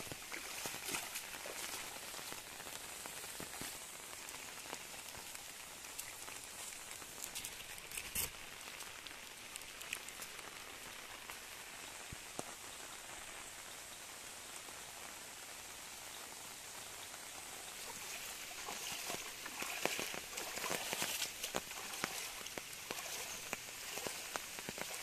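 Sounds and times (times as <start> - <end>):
rain falling on leaves: 0.0 - 25.0
drips tapping: 17.8 - 25.0.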